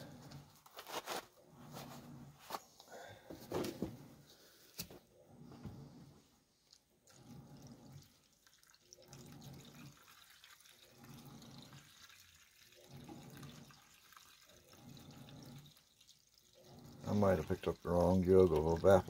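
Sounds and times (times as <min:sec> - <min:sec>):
liquid pouring from jug: 0:06.6 - 0:19.0.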